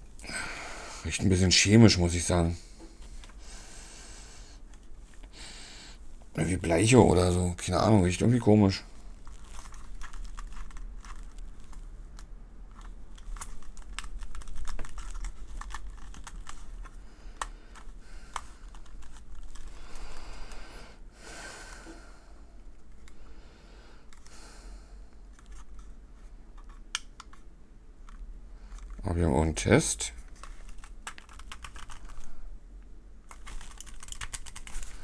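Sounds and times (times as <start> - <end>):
packaging crinkling: 8.9 - 20.6, 30.2 - 32.4, 33.2 - 35.0.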